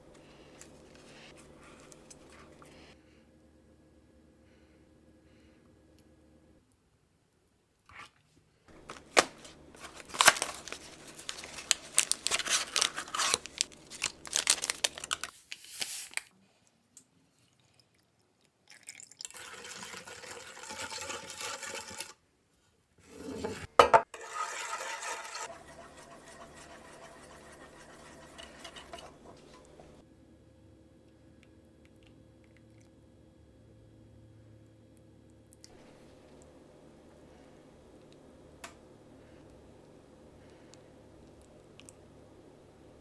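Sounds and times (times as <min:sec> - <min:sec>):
whisk beating in a saucepan: 0:19.4 - 0:22.2, 0:24.2 - 0:30.0.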